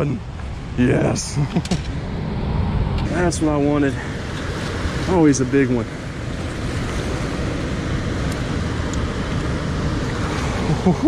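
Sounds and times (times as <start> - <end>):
water rushing through spillway: 3.1 - 11.0.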